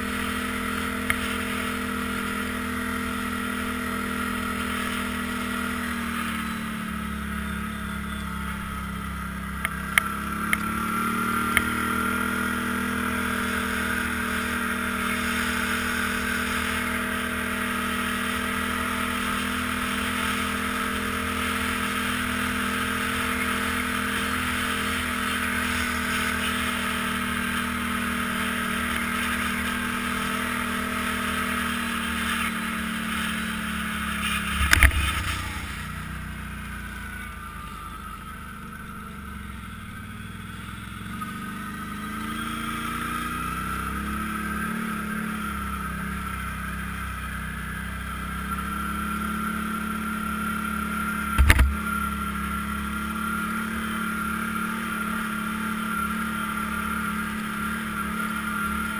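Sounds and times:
atv engine running: 0:00.0 - 0:58.9
sharp knocks: 0:51.4 - 0:51.8.

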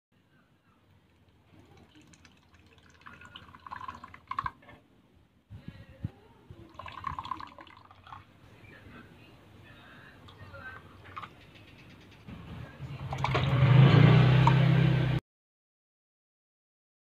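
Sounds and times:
water streaming into plastic cup: 0:01.2 - 0:04.6, 0:06.7 - 0:08.2, 0:13.1 - 0:13.6.

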